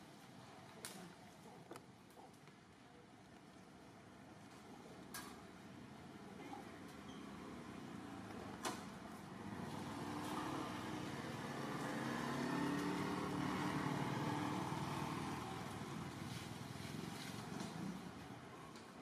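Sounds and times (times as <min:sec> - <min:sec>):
vehicle engine passing by: 0:09.2 - 0:18.2.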